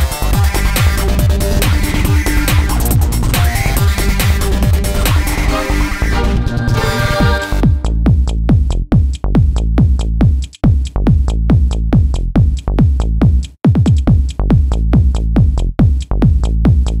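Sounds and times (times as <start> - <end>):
electronic music with fast beat: 0.0 - 17.0.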